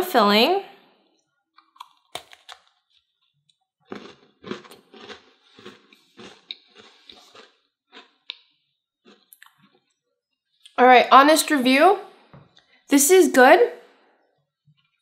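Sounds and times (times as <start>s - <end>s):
cookie being bitten: 1.6s - 9.9s
crunchy chewing: 1.6s - 10.0s.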